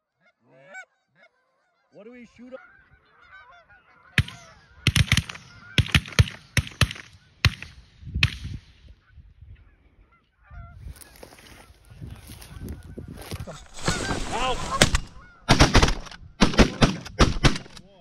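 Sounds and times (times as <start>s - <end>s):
geese honking: 0.1s - 5.9s, 9.8s - 16.4s
echoing shotgun blasts: 4.2s - 8.7s, 13.7s - 17.8s.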